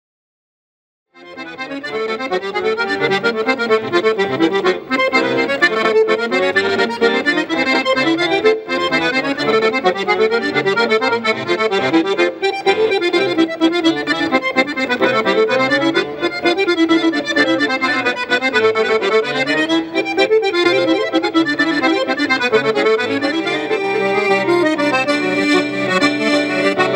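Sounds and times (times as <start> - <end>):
accordion melody: 1.2 - 26.9.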